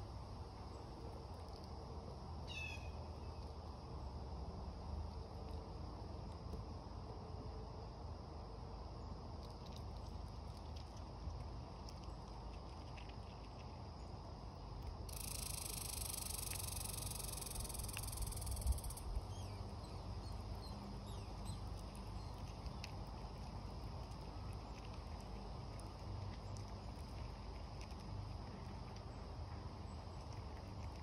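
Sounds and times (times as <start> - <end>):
outdoor noise: 0.0 - 31.0
chipmunk husking seeds: 0.4 - 3.7, 9.3 - 31.0
faint chirps: 15.1 - 22.9.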